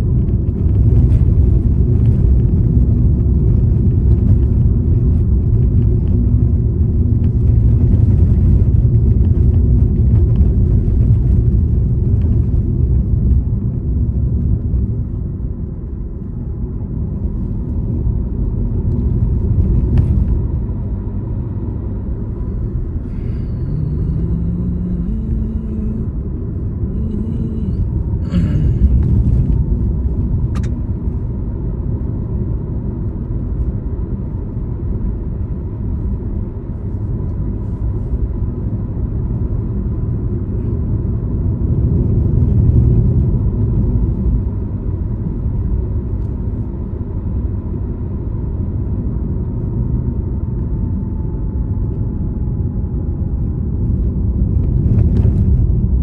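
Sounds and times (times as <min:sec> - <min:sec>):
faint whine: 0:00.0 - 0:31.3
vehicle driving on road: 0:00.0 - 0:56.0.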